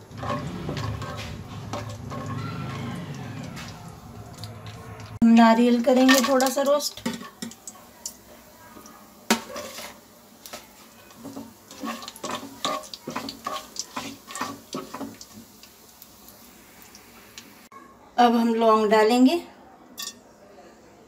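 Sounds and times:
spatula scraping frying pan: 0:00.0 - 0:03.7, 0:09.3 - 0:10.1, 0:10.9 - 0:15.5.

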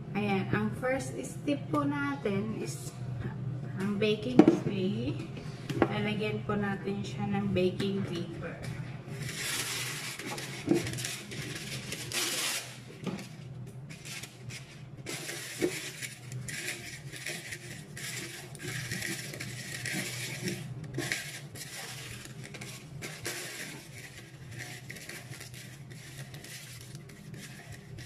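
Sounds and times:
baking paper rustling and crinkling: 0:09.1 - 0:28.0.

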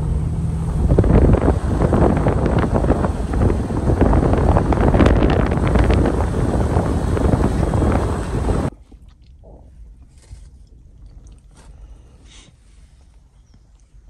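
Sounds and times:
wind buffeting microphone: 0:00.0 - 0:08.8.

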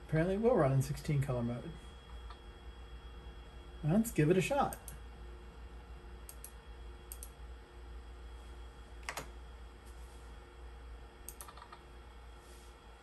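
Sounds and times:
faint steady hum: 0:00.0 - 0:13.0
computer mouse button clicks: 0:07.1 - 0:07.3.

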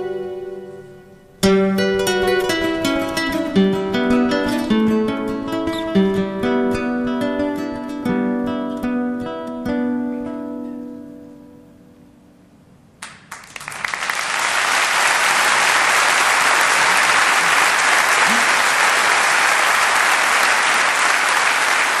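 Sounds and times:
audience applauding: 0:13.0 - 0:22.0.

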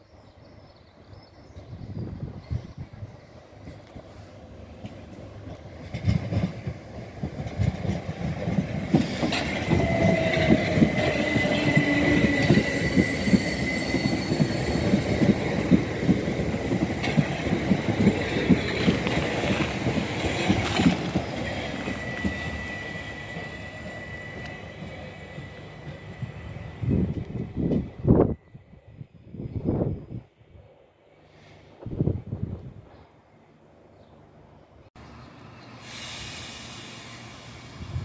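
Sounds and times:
train wheels clattering: 0:04.8 - 0:26.0
high wheel squeal: 0:09.4 - 0:15.5, 0:21.2 - 0:26.9.

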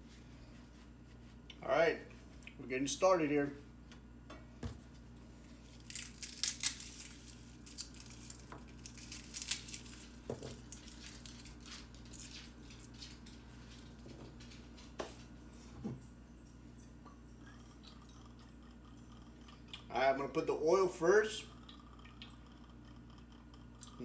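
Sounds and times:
paper towel rustling: 0:00.0 - 0:01.5.

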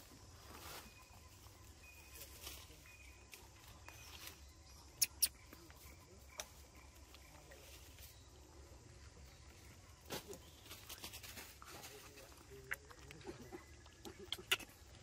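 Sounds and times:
faint high chirps: 0:00.0 - 0:10.9.

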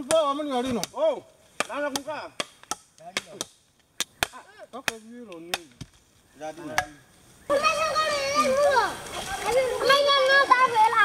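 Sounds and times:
machete chopping wooden sticks: 0:00.0 - 0:06.0, 0:06.6 - 0:07.0
voices: 0:00.0 - 0:11.0.

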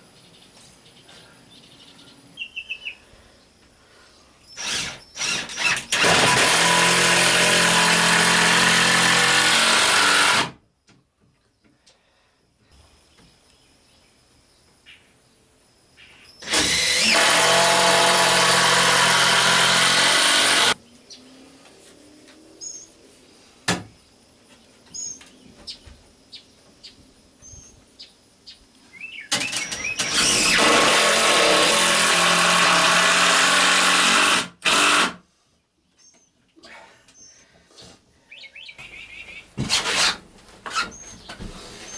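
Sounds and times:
faint bird chirps: 0:00.2 - 0:05.2
cordless drill driving screws: 0:04.6 - 0:10.6, 0:16.4 - 0:20.8, 0:29.3 - 0:35.2, 0:39.7 - 0:40.2.

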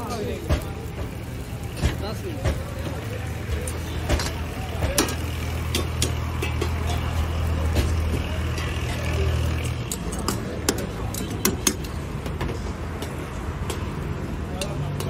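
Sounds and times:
metal spatulas clanking on woks: 0:00.0 - 0:12.0
noisy background: 0:00.0 - 0:15.0.

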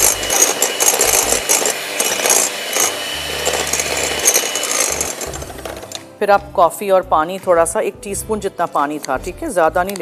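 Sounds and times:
electric hand mixer whisking: 0:00.0 - 0:06.2.

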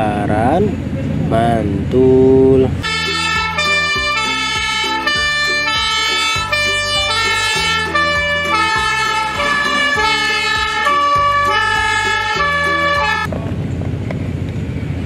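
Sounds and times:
fire engine siren alternating pitch: 0:02.8 - 0:13.3.

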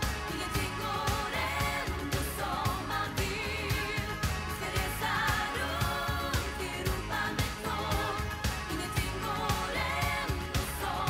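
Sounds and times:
steady drum beat: 0:00.0 - 0:11.0
woman singing pop song: 0:00.0 - 0:11.0.

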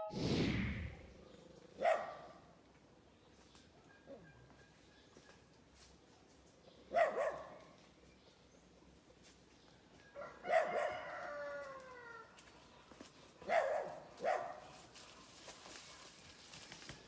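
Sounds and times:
dog barking: 0:01.8 - 0:02.4, 0:06.9 - 0:07.7, 0:10.2 - 0:11.2, 0:13.4 - 0:14.8.

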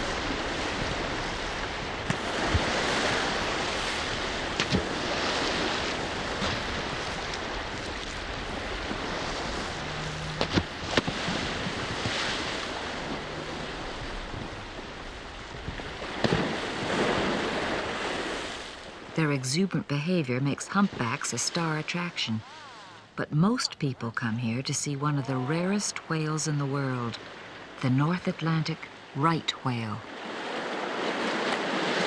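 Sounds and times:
wind buffeting microphone: 0:00.0 - 0:19.1
waves washing: 0:00.0 - 0:32.0.

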